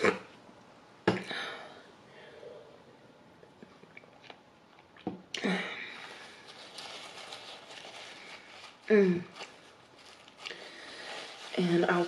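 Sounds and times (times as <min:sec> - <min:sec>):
sipping and swallowing: 0:03.4 - 0:05.4.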